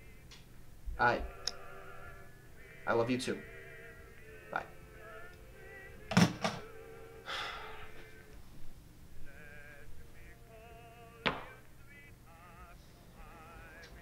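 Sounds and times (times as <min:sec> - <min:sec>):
quiet background music: 0:00.0 - 0:14.0
sharp knock: 0:11.3 - 0:11.6.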